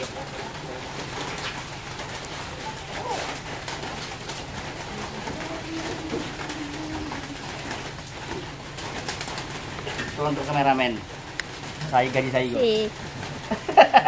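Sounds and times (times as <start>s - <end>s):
steady low hum: 0.0s - 14.0s
dove cooing: 2.3s - 10.2s.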